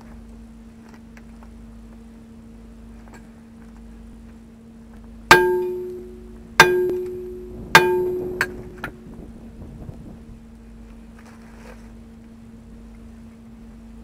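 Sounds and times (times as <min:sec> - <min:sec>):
hammer striking steel hub: 0:05.3 - 0:09.1.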